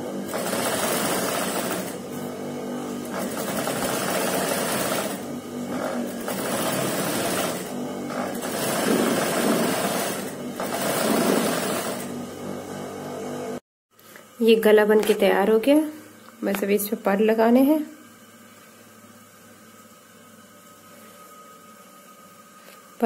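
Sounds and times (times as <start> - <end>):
sewing machine stitching: 0.2 - 12.2.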